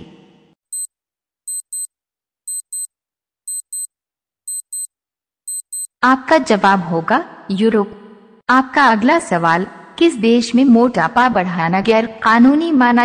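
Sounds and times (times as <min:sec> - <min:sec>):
clock ticking: 0:01.5 - 0:01.9, 0:02.5 - 0:02.9, 0:03.5 - 0:03.9, 0:04.5 - 0:04.9, 0:05.5 - 0:05.9.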